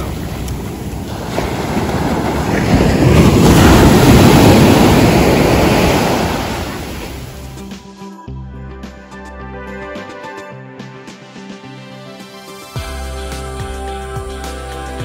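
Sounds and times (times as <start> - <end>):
sea waves breaking: 0.0 - 7.7.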